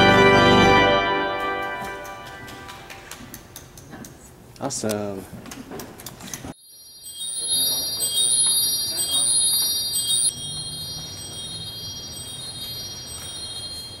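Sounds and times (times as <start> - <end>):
small tuned bells ringing: 0.0 - 2.9, 6.6 - 14.0.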